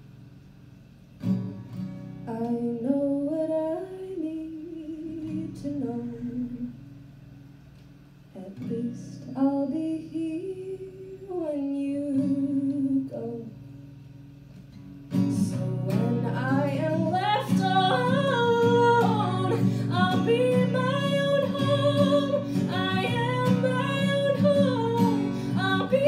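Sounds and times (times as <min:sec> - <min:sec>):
acoustic guitar strumming: 0:01.2 - 0:02.8, 0:12.1 - 0:26.0
woman singing: 0:02.3 - 0:06.8, 0:08.4 - 0:13.6, 0:15.2 - 0:26.0.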